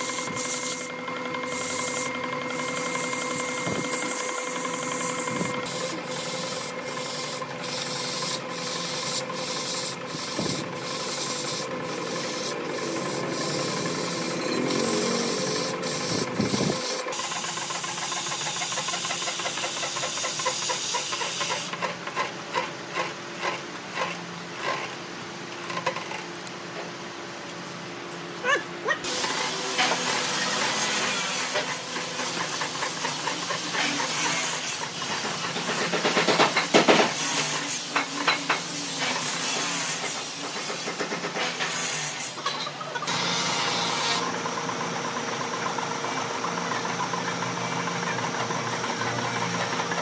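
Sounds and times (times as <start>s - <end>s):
power sander motor whine: 12.0s - 17.0s.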